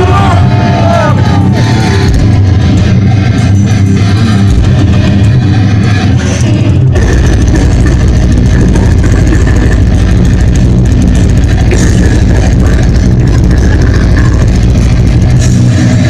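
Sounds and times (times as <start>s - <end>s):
distorted live metal band: 0.0s - 16.0s.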